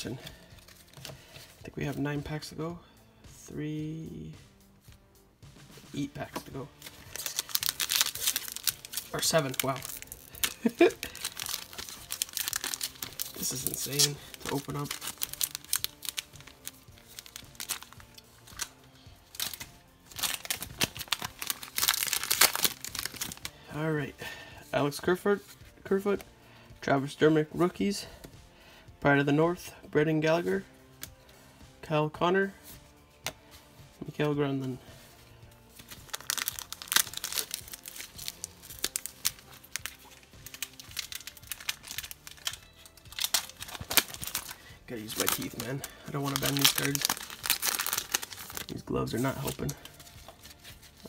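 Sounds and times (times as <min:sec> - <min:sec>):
faint music: 0:00.0 - 0:51.0
foil wrapper crinkling and tearing: 0:06.8 - 0:23.5, 0:35.8 - 0:51.0.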